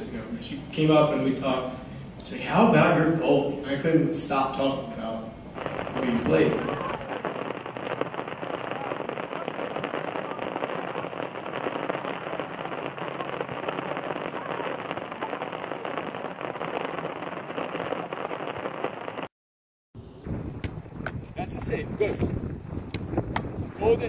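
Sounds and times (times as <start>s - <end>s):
steady rain falling: 4.4s - 19.3s.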